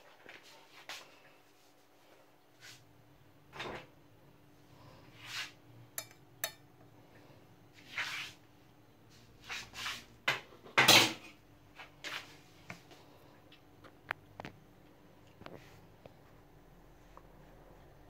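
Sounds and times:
tableware knocks and scrapes: 0:06.0 - 0:06.6.

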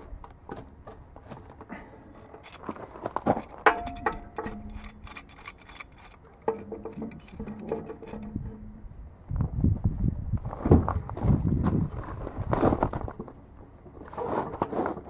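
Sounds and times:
metal tools clinking on metal: 0:02.1 - 0:08.8.

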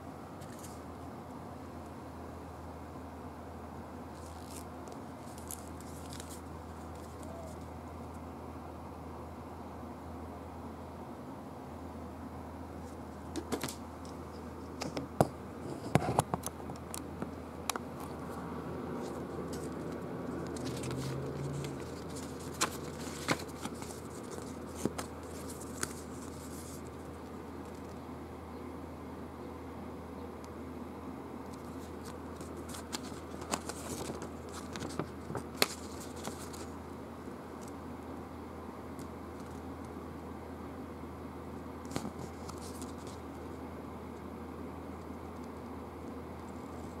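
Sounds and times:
steady low hum: 0:00.0 - 0:47.0
paper rustling and snapping: 0:04.2 - 0:07.6, 0:19.0 - 0:26.9, 0:31.5 - 0:36.8, 0:41.9 - 0:43.2
hands tapping and rustling cardboard box: 0:20.5 - 0:26.7.

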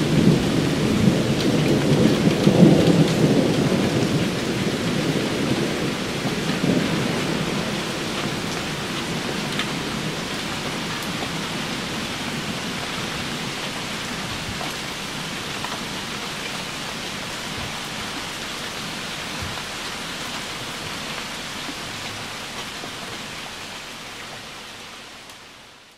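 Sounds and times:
thunder rumble: 0:00.0 - 0:19.8
rain on leaves and water: 0:00.0 - 0:25.9.

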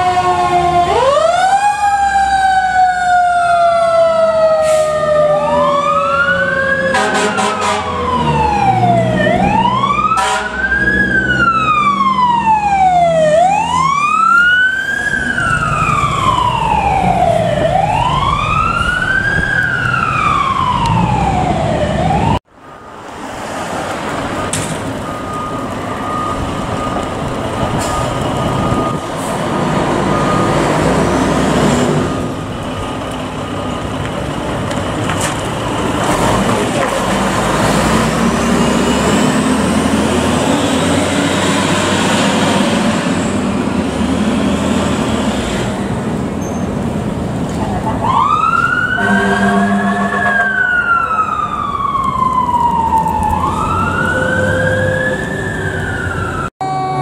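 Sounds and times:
fire engine siren wailing: 0:00.0 - 0:22.5, 0:24.2 - 0:45.9, 0:47.4 - 0:57.0
heavy truck engines rumbling: 0:00.0 - 0:57.0
street noise: 0:00.0 - 0:57.0.

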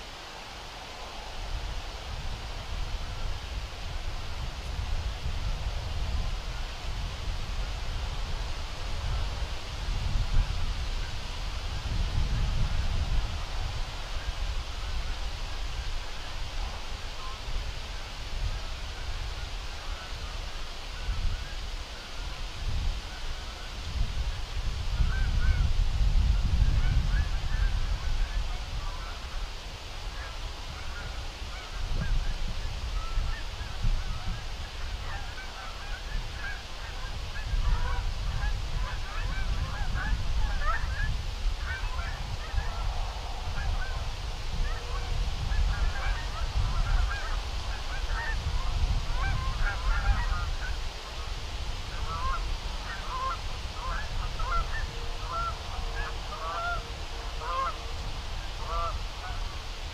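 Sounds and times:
wind rumble on microphone: 0:00.0 - 0:59.9
geese honking: 0:10.1 - 0:22.4, 0:26.4 - 0:29.5, 0:30.1 - 0:59.8.

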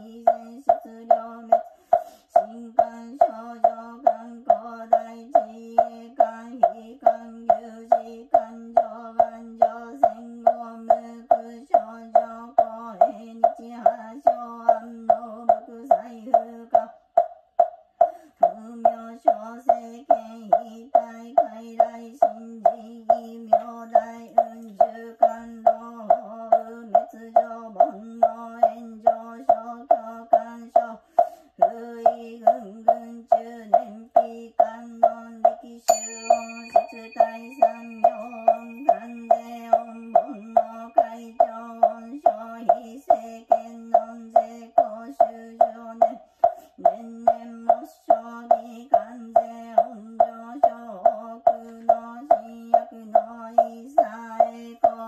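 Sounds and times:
wooden fish drum knocking: 0:00.0 - 0:33.0, 0:35.0 - 0:42.9
monotone chanting: 0:31.6 - 0:46.2
bowl bell ringing: 0:35.9 - 0:42.0.

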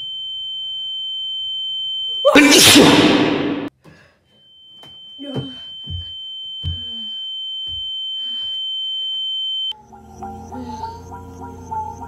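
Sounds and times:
high-pitched ringing tone: 0:04.3 - 0:09.8.

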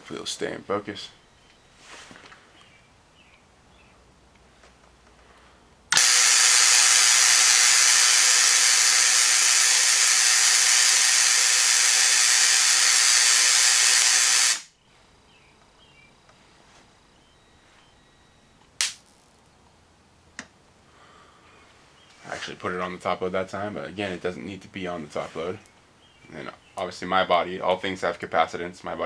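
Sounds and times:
tesla coil buzzing hiss: 0:05.9 - 0:14.8.

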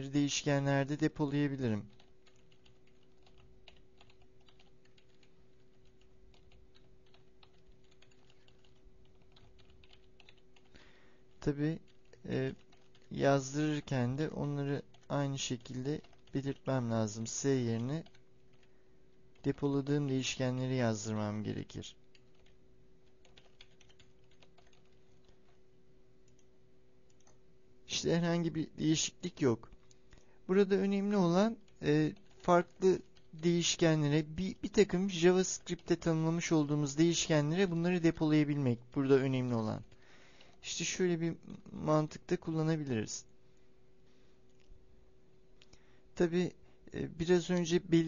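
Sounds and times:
low steady hum: 0:00.0 - 0:48.0
typing on computer keyboard: 0:01.9 - 0:10.8, 0:11.9 - 0:13.1, 0:14.9 - 0:16.7, 0:17.7 - 0:18.7, 0:22.1 - 0:25.6, 0:31.7 - 0:33.5.

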